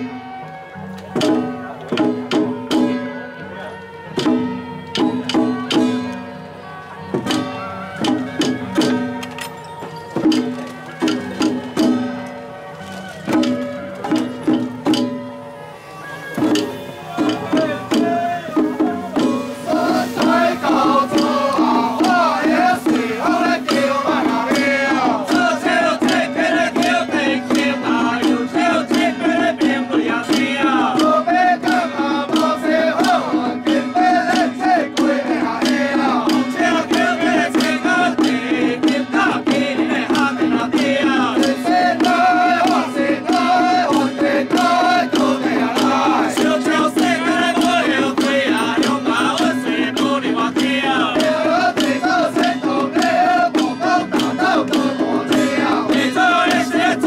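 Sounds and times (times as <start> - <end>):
drums and gongs beaten: 0.0 - 57.0
men chanting: 16.0 - 57.0.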